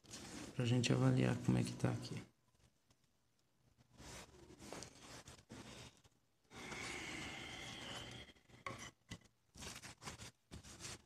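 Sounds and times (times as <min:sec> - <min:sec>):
paper towel rubbing a board: 0:09.6 - 0:11.0.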